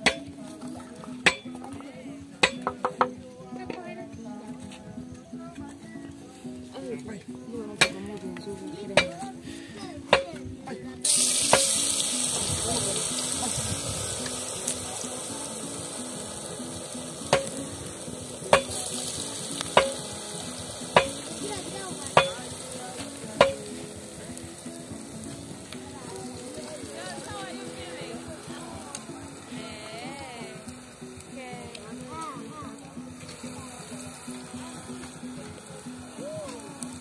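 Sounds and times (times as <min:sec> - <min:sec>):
soft background music: 0:00.0 - 0:37.0
dough sizzling in hot oil: 0:11.0 - 0:31.3.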